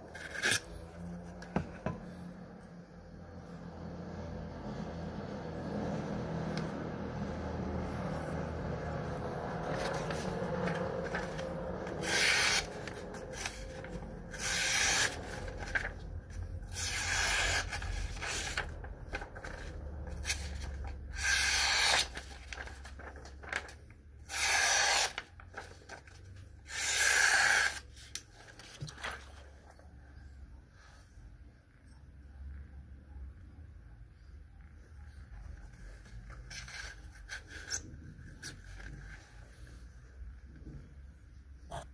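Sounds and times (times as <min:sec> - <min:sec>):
knife slicing through paper: 0:09.6 - 0:16.0, 0:16.7 - 0:26.0.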